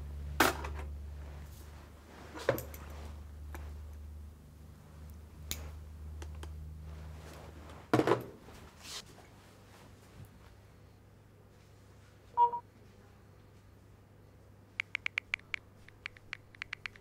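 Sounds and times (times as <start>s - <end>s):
low steady hum: 0.0s - 8.7s.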